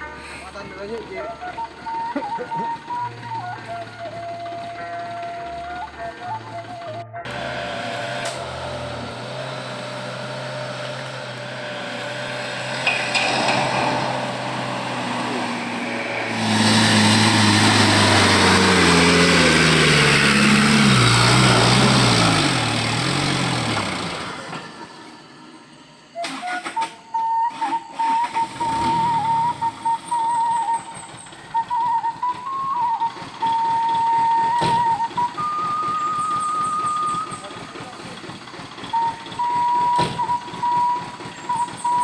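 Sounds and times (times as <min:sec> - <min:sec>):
truck engine driving past: 0:00.0 - 0:26.2, 0:28.4 - 0:42.0
wavering high tone: 0:12.2 - 0:23.4.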